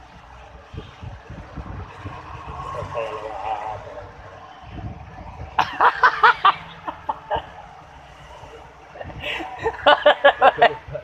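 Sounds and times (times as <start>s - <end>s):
person laughing: 9.0s - 11.0s.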